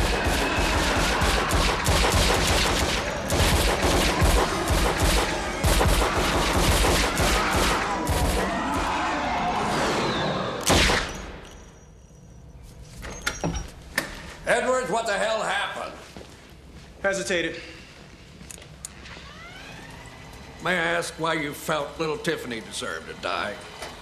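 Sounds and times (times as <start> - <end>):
rapid handgun fire: 0.0 - 8.7, 10.6 - 11.3.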